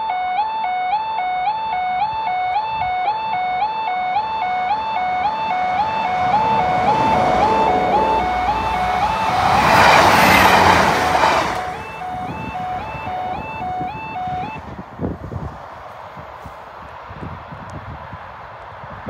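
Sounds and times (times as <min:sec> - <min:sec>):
two-tone warbling crossing alarm: 0:00.0 - 0:14.8
diesel train passing: 0:03.7 - 0:15.8.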